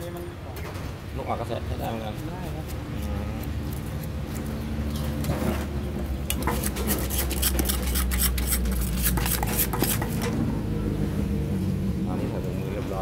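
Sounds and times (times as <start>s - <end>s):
pestle scraping in clay mortar: 1.9s - 10.4s.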